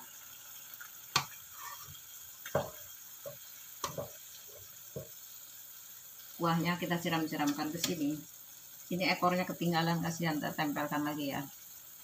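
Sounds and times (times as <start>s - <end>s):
sauce bubbling and sizzling: 0.0s - 12.0s
spatula scraping a pan: 1.1s - 5.3s.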